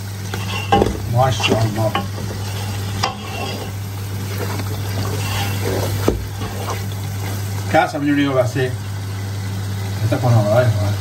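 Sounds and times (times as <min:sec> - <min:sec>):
steady low hum: 0:00.0 - 0:10.2
food sizzling: 0:00.0 - 0:11.0
wooden spatula scraping metal pot: 0:00.2 - 0:07.5.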